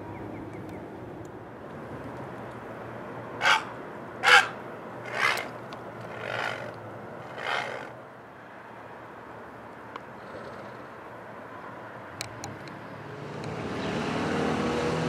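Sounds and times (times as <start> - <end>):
faint outdoor background noise: 0.0 - 15.0
crow cawing: 3.4 - 4.6.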